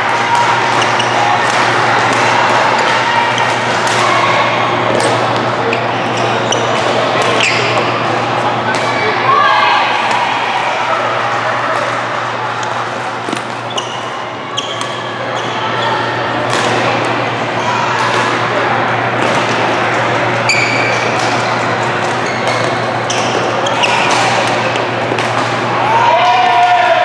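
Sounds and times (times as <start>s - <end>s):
hubbub of voices: 0.0s - 27.0s
racket hitting shuttlecock: 0.3s - 4.1s, 6.5s - 7.9s, 12.6s - 14.0s, 20.3s - 25.7s
sneaker squeaks on court: 5.2s - 8.0s, 13.4s - 15.9s, 20.4s - 24.7s.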